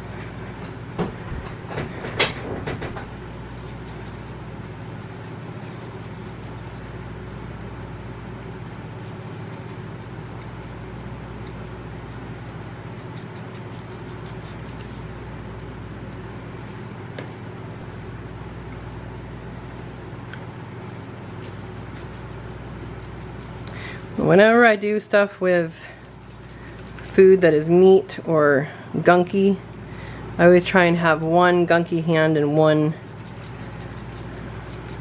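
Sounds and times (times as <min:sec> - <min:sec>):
low hum: 0:00.0 - 0:35.0
spice jar shaking: 0:03.0 - 0:06.9, 0:08.6 - 0:09.8, 0:12.0 - 0:15.1, 0:20.8 - 0:27.8, 0:33.0 - 0:35.0.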